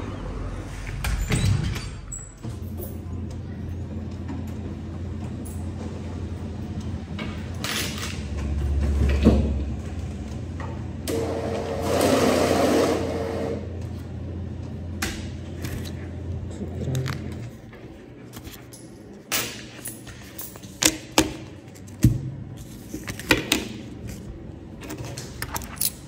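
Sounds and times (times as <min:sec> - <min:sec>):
banknote counting machine whirring: 0:11.1 - 0:13.7.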